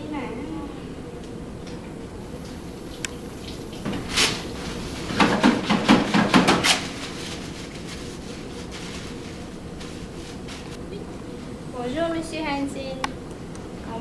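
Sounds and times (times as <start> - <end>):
paper towels rustling: 3.8 - 10.8.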